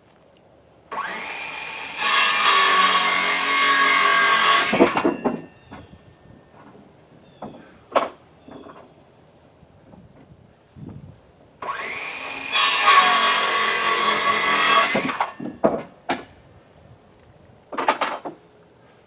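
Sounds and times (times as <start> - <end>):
wood pieces knocking: 4.6 - 5.9, 14.8 - 16.4, 17.7 - 18.4.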